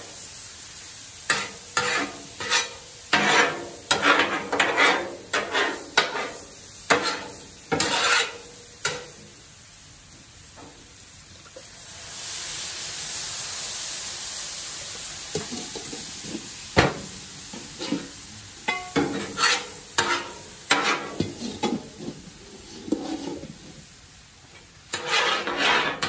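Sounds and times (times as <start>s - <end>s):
food frying: 0.0s - 26.0s
sizzling hiss: 0.0s - 26.0s
metal spatulas scraping griddle: 1.3s - 9.1s, 17.6s - 23.9s, 24.9s - 26.0s.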